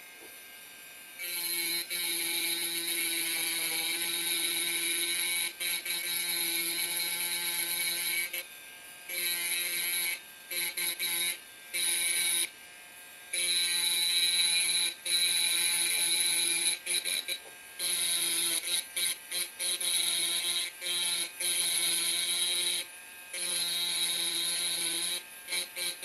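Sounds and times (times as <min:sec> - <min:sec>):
rotary engraver grinding glass: 0:00.0 - 0:12.6, 0:13.2 - 0:26.0.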